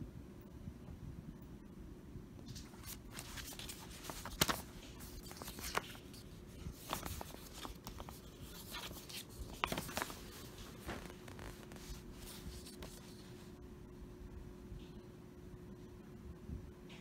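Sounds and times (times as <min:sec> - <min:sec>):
paper map crinkling: 0:02.4 - 0:13.6.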